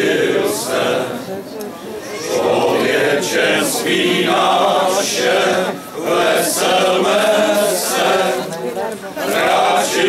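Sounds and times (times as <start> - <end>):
men's choir singing carol: 0.0 - 1.5, 2.3 - 10.0.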